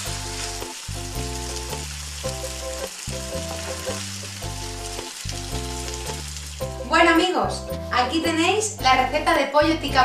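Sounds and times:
food sizzling in frying pan: 0.0s - 7.9s
background music: 0.0s - 10.0s.

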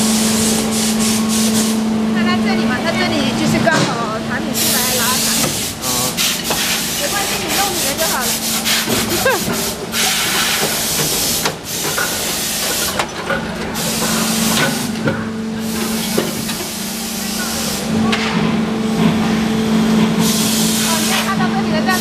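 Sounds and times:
machine hum: 0.0s - 22.0s
loud hissing: 4.5s - 17.9s.

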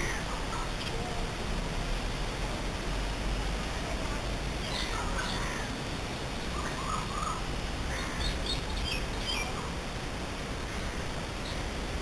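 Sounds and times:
birds calling: 0.0s - 0.9s, 4.6s - 9.7s, 10.6s - 11.8s
steady hiss: 0.0s - 12.0s.

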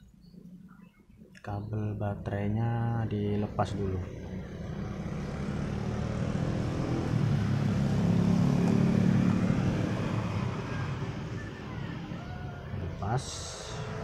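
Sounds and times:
passing vehicle engine drone: 2.9s - 14.0s.

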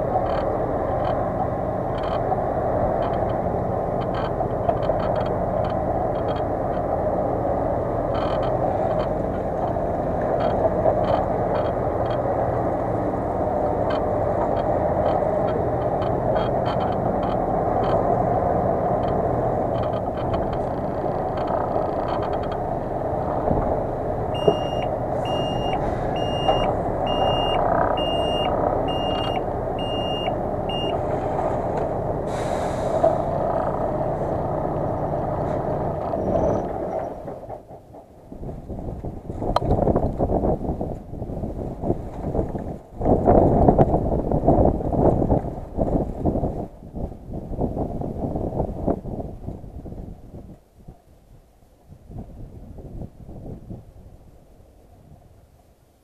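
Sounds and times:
tyres crackling on dirt: 0.0s - 37.6s
truck diesel engine running: 0.0s - 46.6s
reversing alarm beeping: 24.3s - 31.0s.

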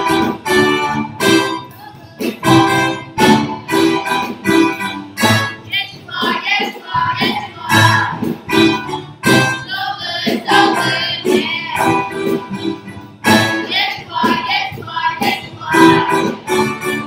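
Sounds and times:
guitar accompaniment: 0.0s - 17.0s
children singing: 5.6s - 8.7s, 9.3s - 12.5s, 13.2s - 17.0s.

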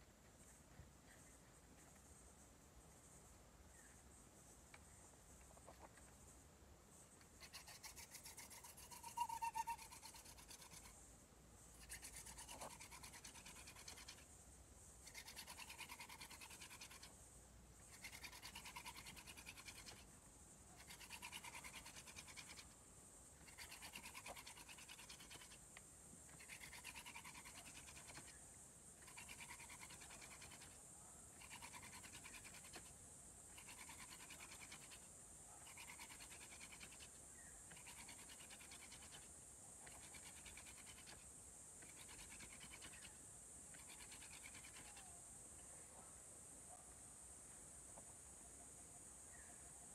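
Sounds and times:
wooden spindle rubbing on board: 7.5s - 10.9s, 11.8s - 14.2s, 18.0s - 20.0s, 23.4s - 25.6s, 26.3s - 28.3s
wood squeak: 8.7s - 10.2s.

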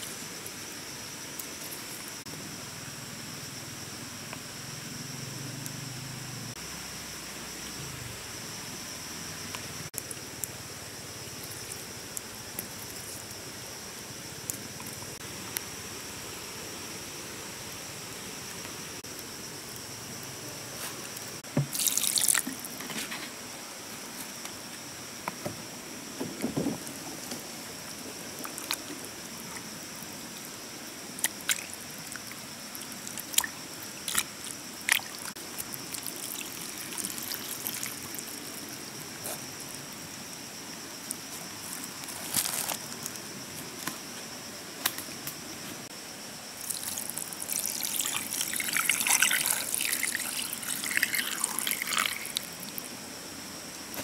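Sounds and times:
water pouring into metal pot: 21.7s - 22.7s, 34.9s - 38.6s, 46.6s - 52.8s.

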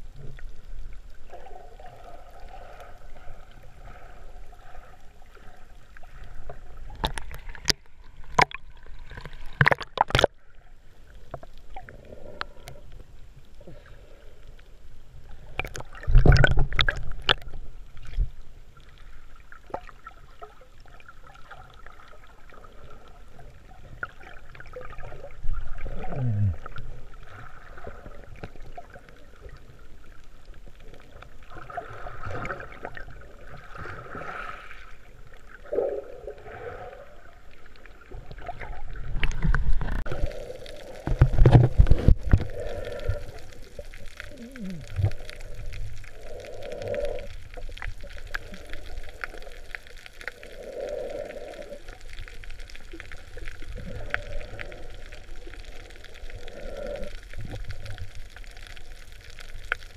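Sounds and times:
water sloshing and gurgling: 0.0s - 59.9s
splashes and knocks: 7.0s - 10.4s, 41.0s - 42.5s.

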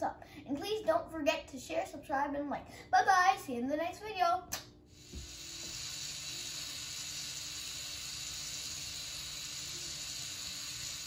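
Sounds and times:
toy motor and gears whirring: 5.0s - 11.0s.

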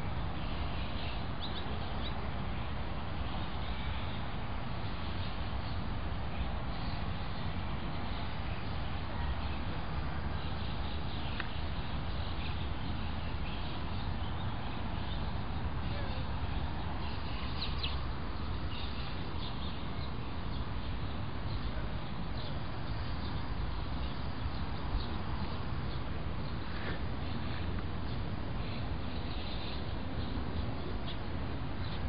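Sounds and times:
faint bird chirps: 10.3s - 32.0s.

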